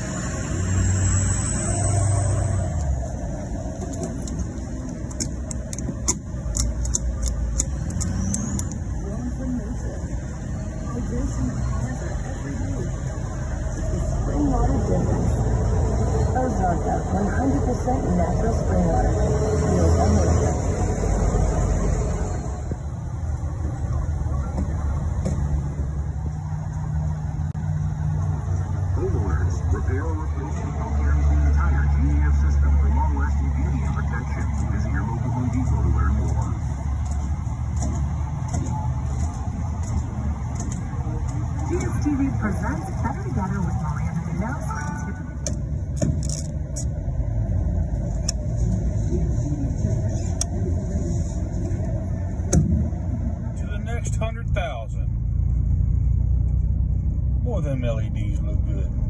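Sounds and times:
low vehicle rumble: 0:00.0 - 0:59.0
fuel cap clicking: 0:03.8 - 0:08.8.

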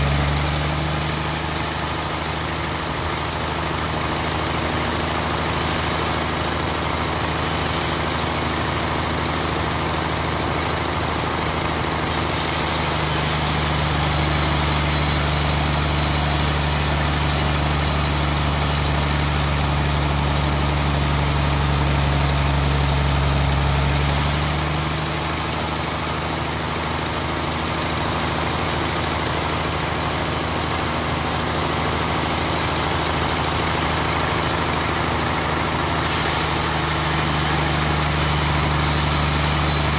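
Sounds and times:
sawmill machine hum: 0:00.0 - 0:39.9
saw blade cutting wood: 0:12.1 - 0:24.3, 0:35.1 - 0:39.9.

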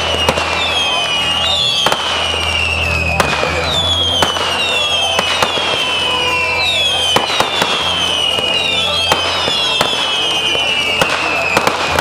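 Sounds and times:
firework bangs: 0:00.0 - 0:12.0
whistling firework rockets: 0:00.0 - 0:12.0.

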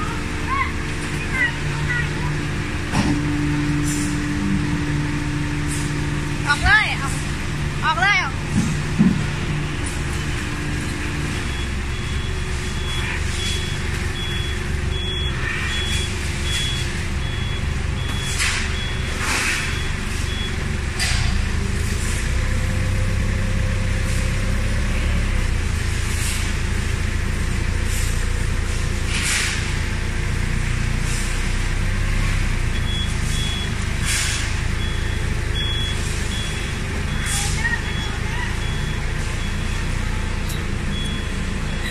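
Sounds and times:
forklift engine running: 0:00.0 - 0:41.9
high alarm beeps: 0:09.5 - 0:20.6, 0:32.7 - 0:41.9.

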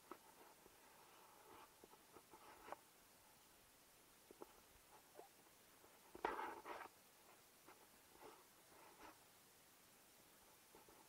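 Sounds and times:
faint rustles: 0:00.0 - 0:03.6, 0:04.2 - 0:09.4.

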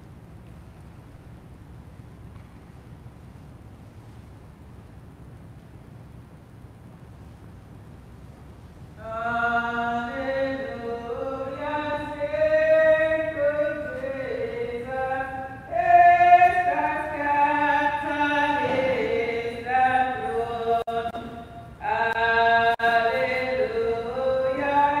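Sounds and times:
person singing a hymn: 0:09.0 - 0:25.0.

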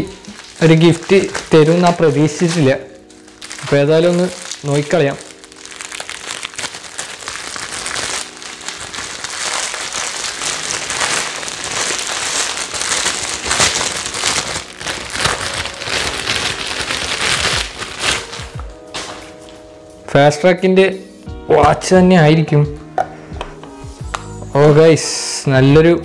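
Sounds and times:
plastic wrapping crinkling: 0:00.0 - 0:19.7.

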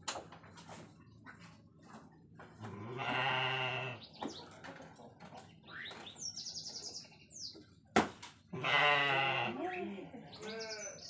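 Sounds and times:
animal bleating: 0:02.7 - 0:04.0, 0:08.5 - 0:11.0.

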